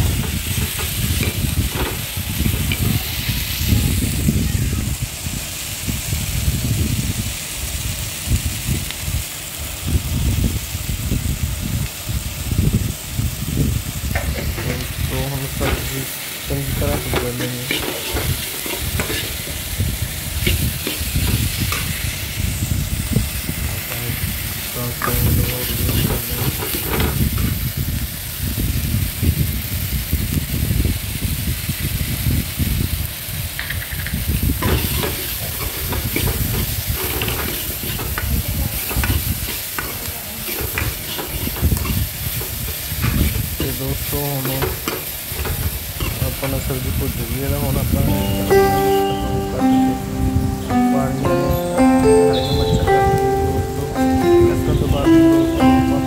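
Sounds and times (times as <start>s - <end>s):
vegetables sizzling in oil: 0.0s - 56.0s
spoon scraping metal pan: 16.7s - 19.8s, 34.6s - 43.7s.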